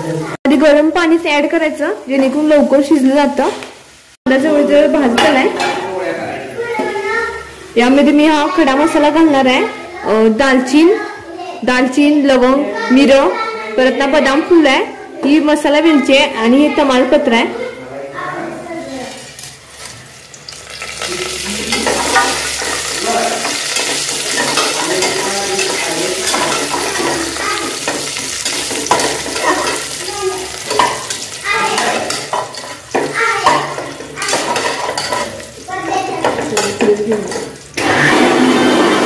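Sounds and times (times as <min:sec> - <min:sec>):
onion sizzling in hot oil: 0:00.0 - 0:12.2, 0:18.5 - 0:39.0
loud machine hum: 0:37.8 - 0:39.0.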